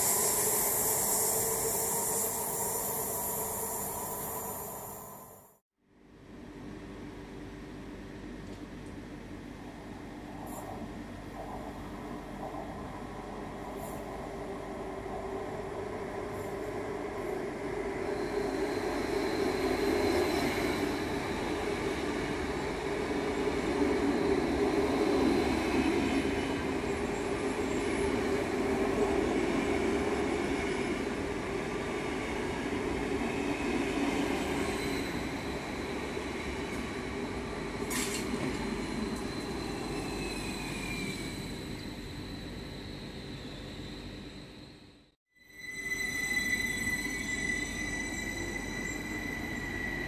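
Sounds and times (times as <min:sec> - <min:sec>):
train wheels rumbling on rails: 0:10.2 - 0:42.7.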